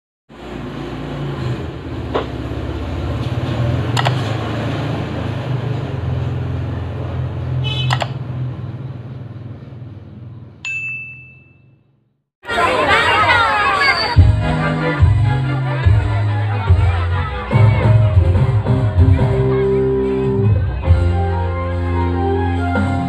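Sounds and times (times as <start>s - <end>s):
sharp clicks: 4.0s - 4.3s, 7.9s - 8.2s
bell ding: 10.6s - 11.8s.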